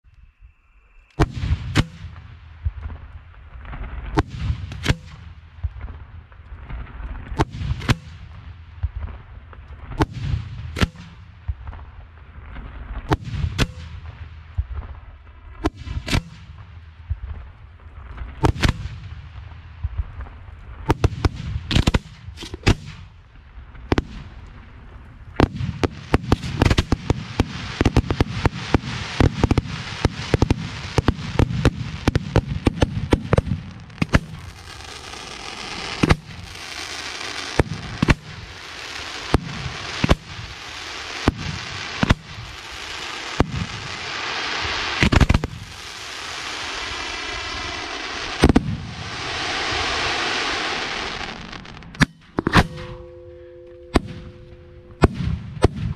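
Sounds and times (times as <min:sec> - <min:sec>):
steady firework hiss: 0:10.0 - 0:52.0
firework shells bursting: 0:25.4 - 0:49.8.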